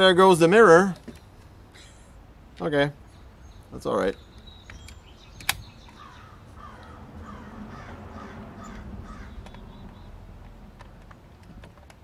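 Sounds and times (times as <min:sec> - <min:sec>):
crow cawing: 0:06.0 - 0:09.6.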